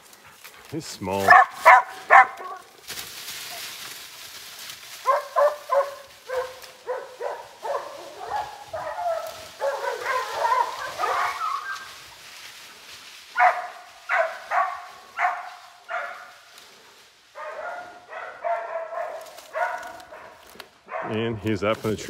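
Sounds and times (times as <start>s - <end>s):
soft rustle: 0.0s - 17.6s
dogs barking: 1.2s - 2.7s, 5.0s - 12.0s, 13.3s - 16.5s, 17.3s - 21.4s.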